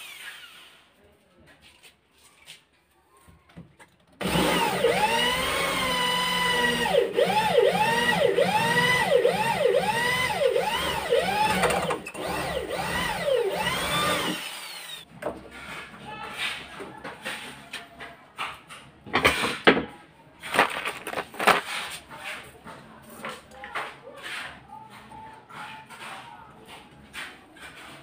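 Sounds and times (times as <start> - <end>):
electric drill boring into wood: 4.2 - 15.0.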